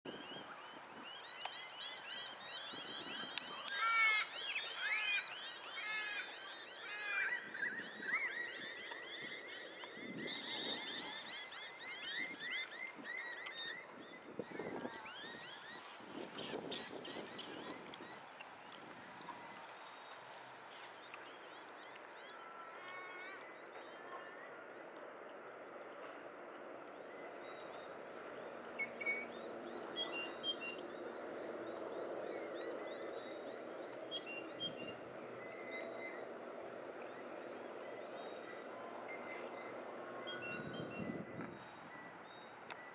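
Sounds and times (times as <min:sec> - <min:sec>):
birds chirping and whistling: 0:00.1 - 0:18.2, 0:27.1 - 0:42.9.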